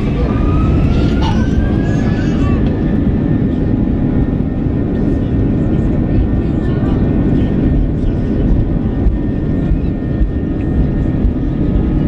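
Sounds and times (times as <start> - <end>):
aircraft engines humming: 0.0 - 12.0
heavy low rumble: 0.0 - 12.0.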